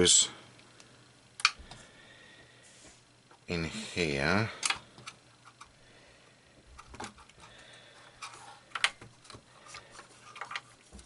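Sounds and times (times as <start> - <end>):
small clicks and knocks: 8.2 - 11.0.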